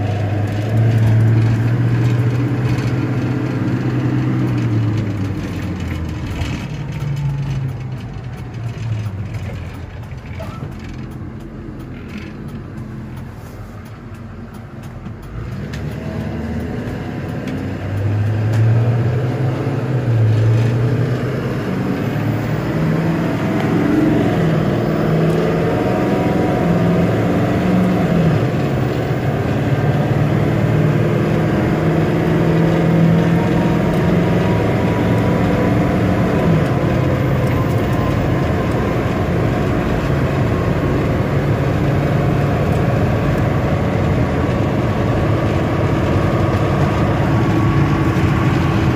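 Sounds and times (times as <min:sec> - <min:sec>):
diesel truck engine accelerating: 0:00.0 - 0:48.9
road and tyre noise: 0:00.0 - 0:48.9.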